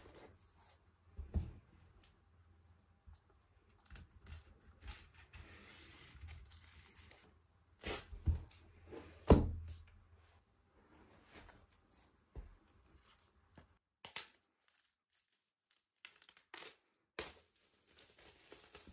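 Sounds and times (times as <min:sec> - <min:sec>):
plastic wrap scratching and crinkling: 0:14.5 - 0:18.9.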